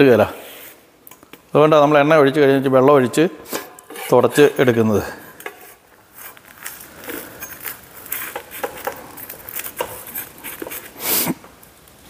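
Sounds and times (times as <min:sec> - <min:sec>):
spatula scraping griddle: 0:03.4 - 0:11.2.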